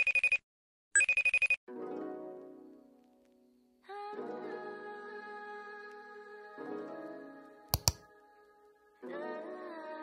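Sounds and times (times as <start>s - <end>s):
telephone ringing: 1.0s - 1.6s.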